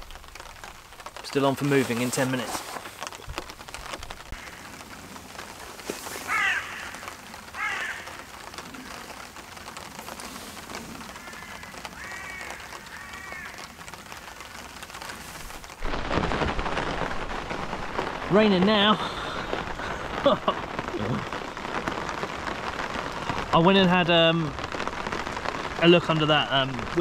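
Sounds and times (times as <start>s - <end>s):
rain pattering on a pond: 0.0s - 27.0s
bird calling: 4.3s - 9.4s, 10.1s - 15.4s.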